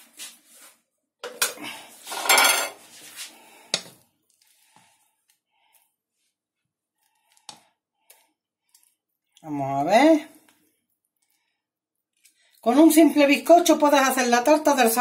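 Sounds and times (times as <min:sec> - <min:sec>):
spatula scraping metal saucepan: 0:02.0 - 0:02.9.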